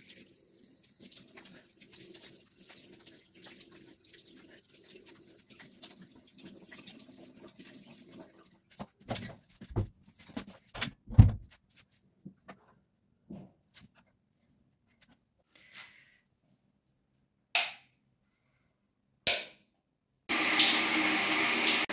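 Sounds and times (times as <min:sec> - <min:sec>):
water splashing in sink: 0:00.0 - 0:09.9, 0:20.3 - 0:21.9.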